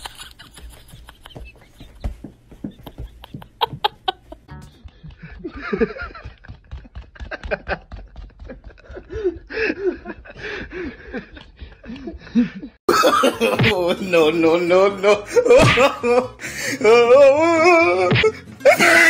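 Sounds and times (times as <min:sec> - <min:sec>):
person giggling: 0:00.0 - 0:13.8.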